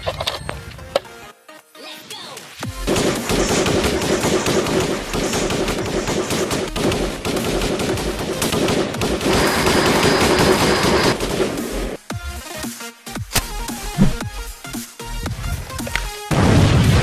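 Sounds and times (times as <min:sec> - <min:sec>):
rapid automatic gunfire: 0:02.8 - 0:12.0.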